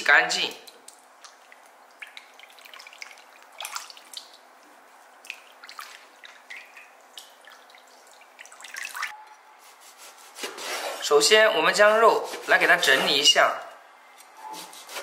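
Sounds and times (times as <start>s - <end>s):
light splashes and drips: 0.4s - 9.2s
meat washed in water: 0.6s - 9.1s.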